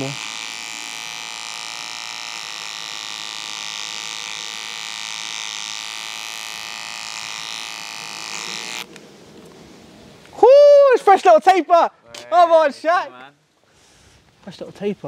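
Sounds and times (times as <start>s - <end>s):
beard trimmer buzzing: 0.0s - 8.9s.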